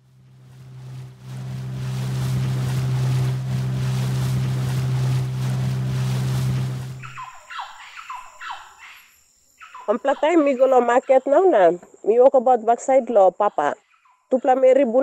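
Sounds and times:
outboard motor running: 0:00.0 - 0:07.3.

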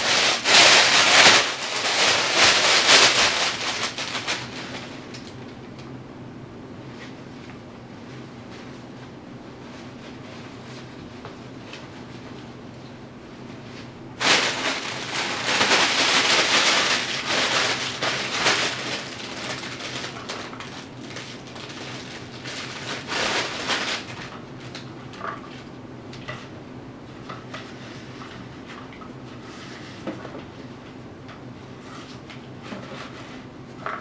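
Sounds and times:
fabric tunnel rustling: 0:00.0 - 0:05.1, 0:13.6 - 0:24.4
plastic sheeting crinkling: 0:00.0 - 0:05.2, 0:13.7 - 0:25.7.

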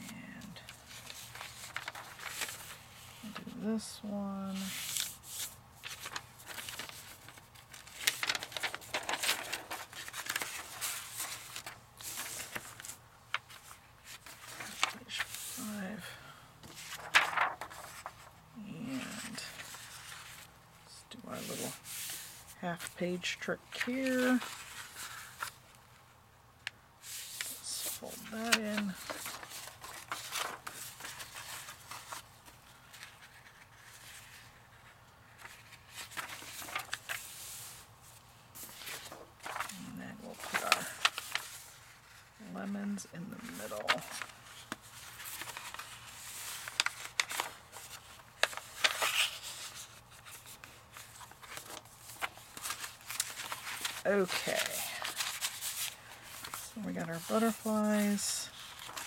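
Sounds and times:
paper rustling and sliding: 0:00.6 - 0:03.6, 0:04.5 - 0:16.0, 0:16.6 - 0:20.5, 0:21.2 - 0:26.0, 0:27.0 - 0:42.4, 0:43.3 - 0:59.0
faint low hum: 0:05.8 - 0:21.8.

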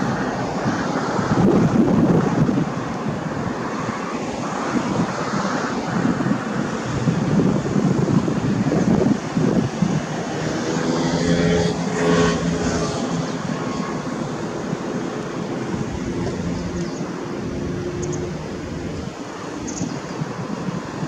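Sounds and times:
engine droning: 0:09.9 - 0:19.7.

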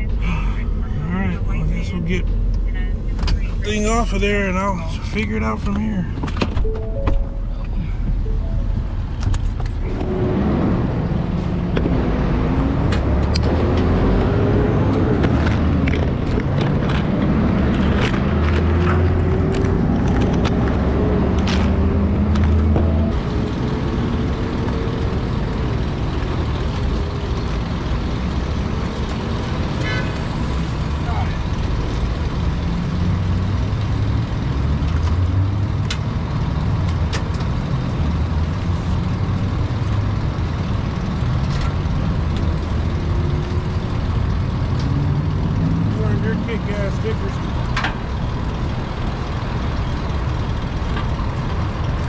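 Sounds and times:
truck engine running: 0:46.1 - 0:52.0.

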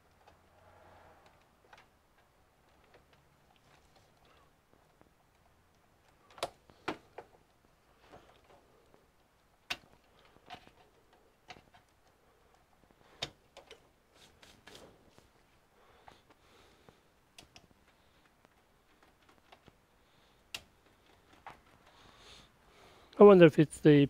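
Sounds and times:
cable connectors clicking: 0:01.2 - 0:13.9, 0:17.3 - 0:22.0.

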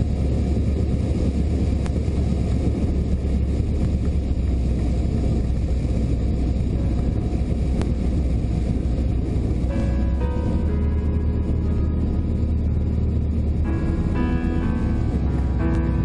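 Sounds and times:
propeller aircraft engine droning: 0:00.0 - 0:16.0
wind noise: 0:00.0 - 0:16.0
music: 0:06.7 - 0:16.0.

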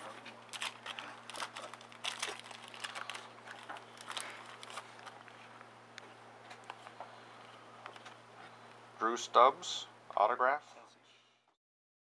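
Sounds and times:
foil wrapper crinkling: 0:00.0 - 0:05.5.

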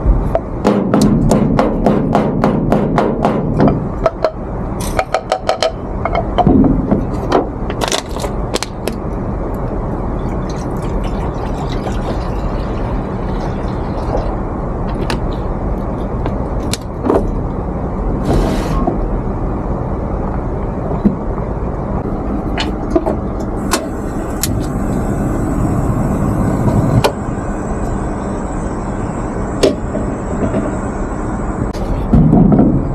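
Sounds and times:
low background rumble: 0:00.0 - 0:32.9
pestle pounding in mortar: 0:00.6 - 0:03.8.

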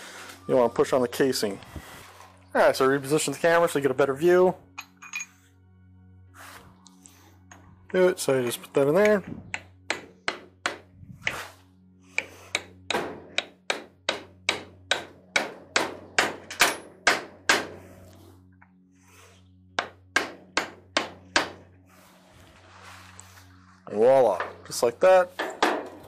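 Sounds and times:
hammer striking metal: 0:09.0 - 0:10.9, 0:12.2 - 0:17.9, 0:19.8 - 0:21.7, 0:25.4 - 0:26.0.

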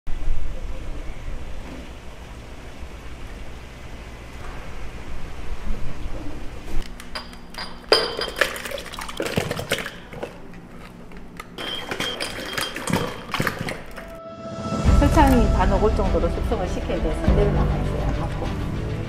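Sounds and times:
dishes and utensils clinking: 0:07.0 - 0:10.6, 0:11.6 - 0:14.2.

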